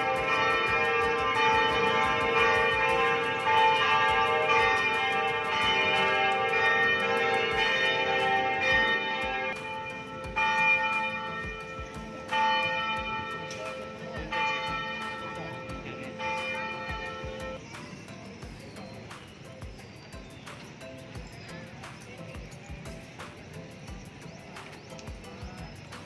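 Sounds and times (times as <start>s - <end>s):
church bells ringing: 0.0s - 17.7s.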